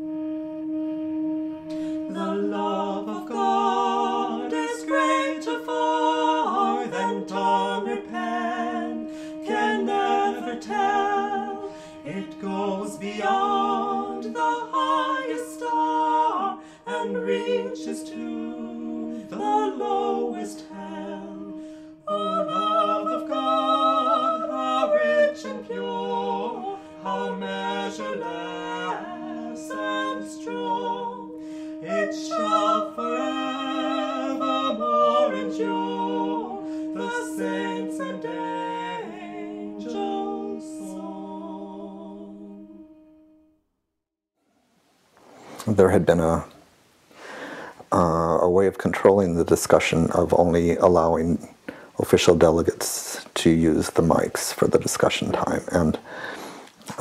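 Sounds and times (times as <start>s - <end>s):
voices singing a cappella: 0.0s - 43.1s, 47.3s - 57.0s.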